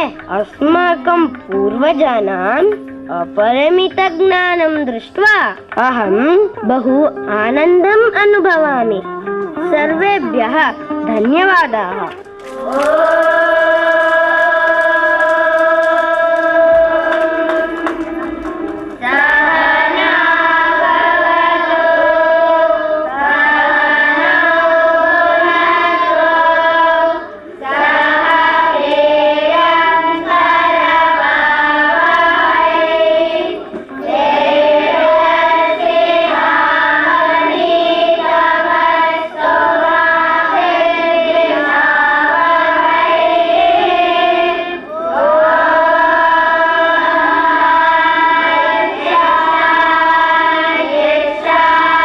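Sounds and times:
children singing: 12.5s - 52.0s.

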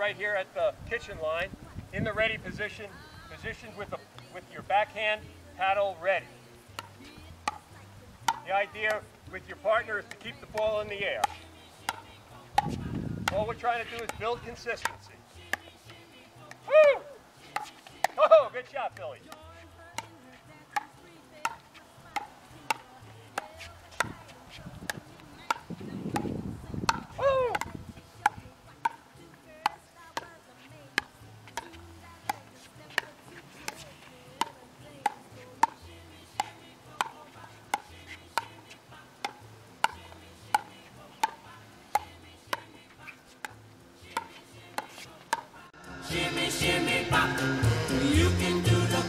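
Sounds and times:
paddles striking plastic ball: 6.7s - 16.6s, 18.9s - 45.5s.

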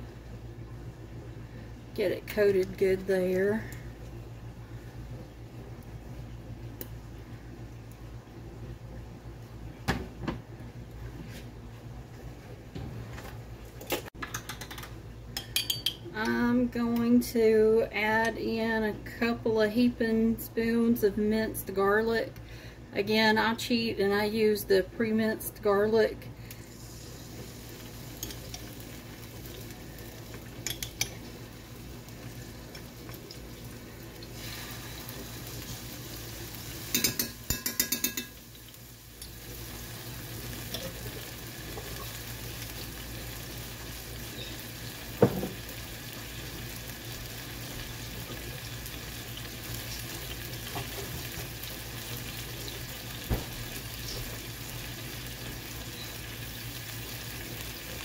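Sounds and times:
spoon tapping against pan: 14.2s - 16.0s, 36.9s - 38.4s
garlic sizzling in oil: 26.5s - 58.0s.

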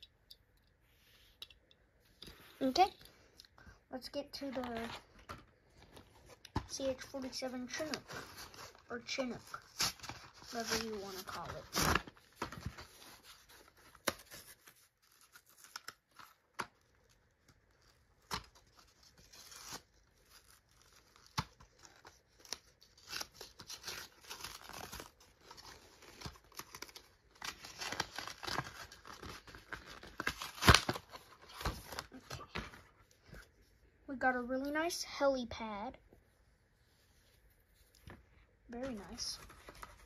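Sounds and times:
tape and wrapping tearing: 6.2s - 32.5s.

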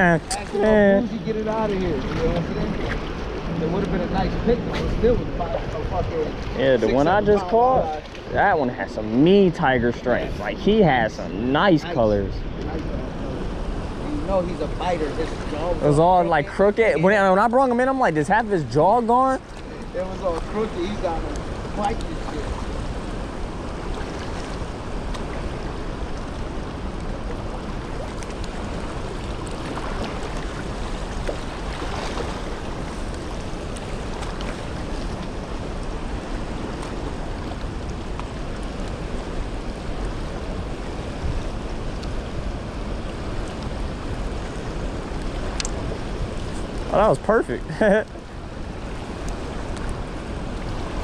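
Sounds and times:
wind rumble on microphone: 0.0s - 11.5s, 12.2s - 51.0s
fast river rushing: 0.0s - 51.0s.

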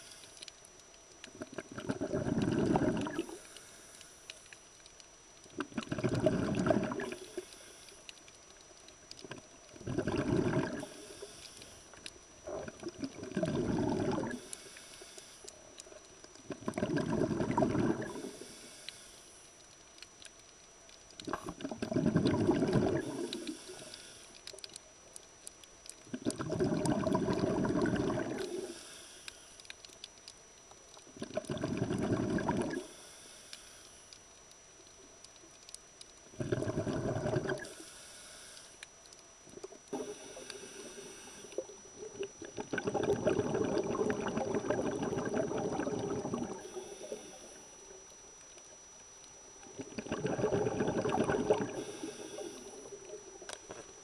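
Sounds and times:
exhaled bubbles rushing: 1.4s - 3.4s, 5.6s - 7.2s, 9.2s - 10.9s, 12.4s - 14.4s, 16.5s - 18.3s, 21.2s - 23.4s, 26.1s - 28.7s, 31.2s - 32.8s, 36.3s - 37.7s, 41.6s - 46.8s, 49.7s - 51.9s.

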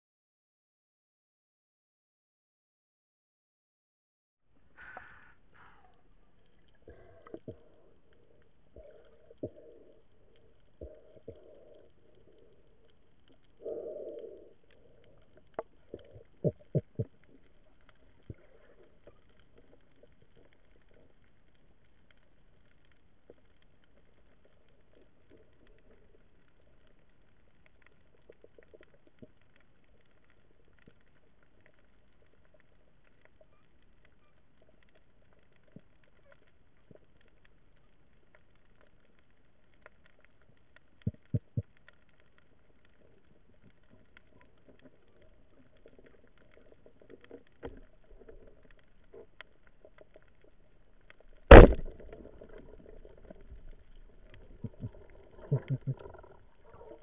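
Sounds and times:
faint clicks: 4.7s - 57.0s
speargun bang underwater: 51.5s - 52.0s.

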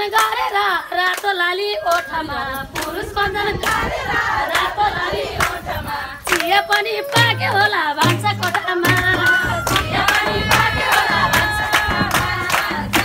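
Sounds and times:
women singing folk song: 0.0s - 13.0s
hand clapping: 6.3s - 7.4s, 8.0s - 13.0s.

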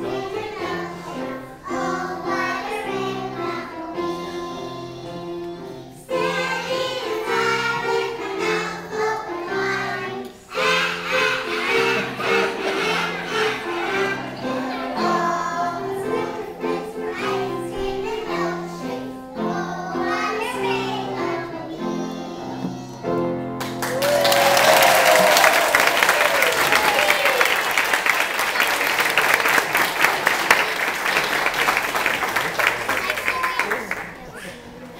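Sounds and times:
children singing together: 0.0s - 23.4s
audience applause: 11.7s - 14.7s, 23.6s - 34.6s.

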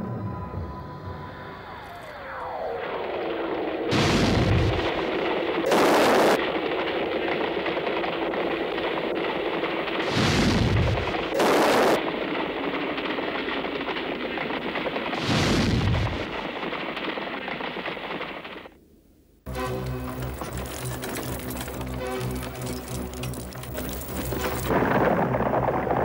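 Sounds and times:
loud explosion blasts: 2.9s - 18.4s, 24.4s - 26.0s.

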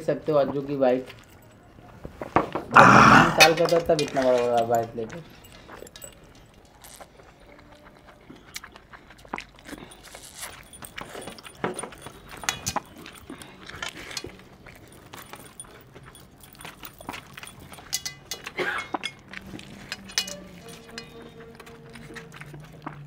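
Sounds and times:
wet chewing and lip smacking: 5.5s - 23.0s.

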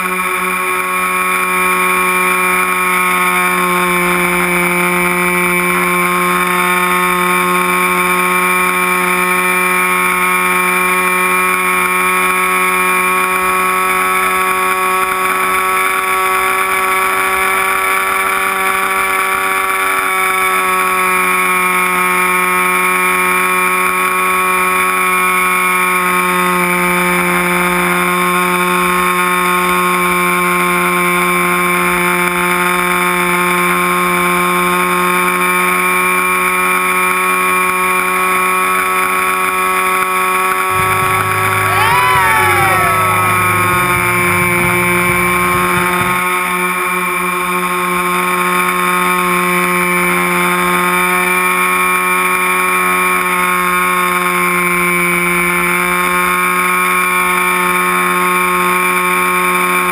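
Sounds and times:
model plane motor whine: 40.8s - 46.4s.

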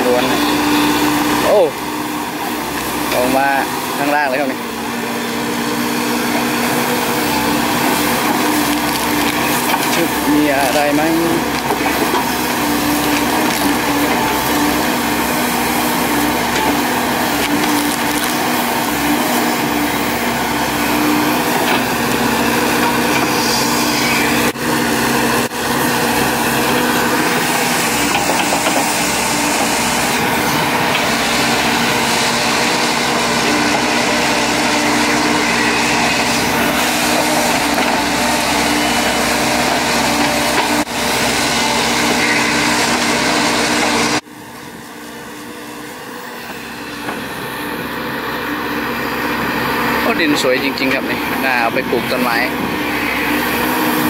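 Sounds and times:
excavator diesel engine: 0.0s - 54.0s
bucket crunching roots in soil: 7.1s - 21.0s.

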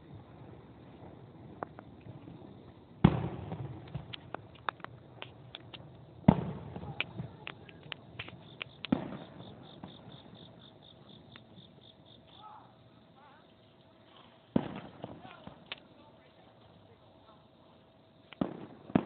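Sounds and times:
fireworks booms with rumbling echo: 0.0s - 11.0s, 14.5s - 15.9s, 18.4s - 19.0s
fireworks crackling pops: 0.0s - 12.5s, 14.0s - 16.4s, 18.2s - 19.0s.

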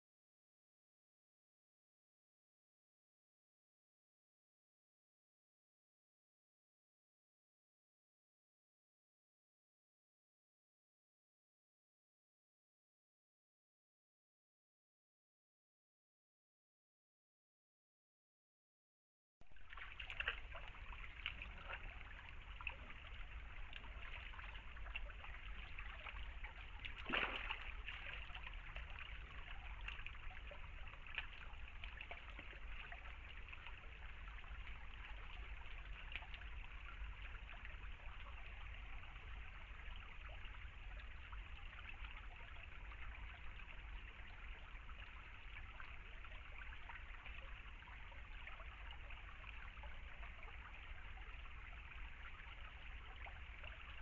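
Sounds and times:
stream trickling over stones: 19.5s - 54.0s.

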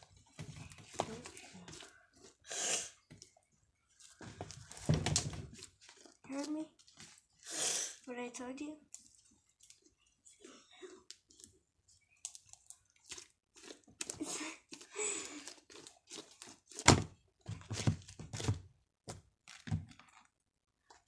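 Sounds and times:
slime squishing: 11.0s - 18.6s.

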